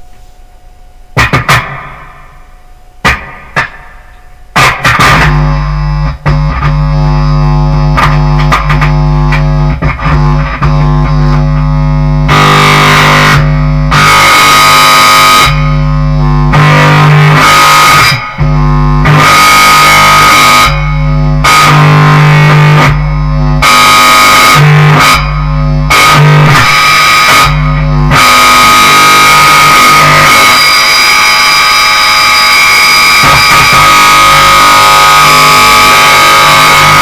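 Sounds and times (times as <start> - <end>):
distorted bass guitar: 0.0 - 37.0.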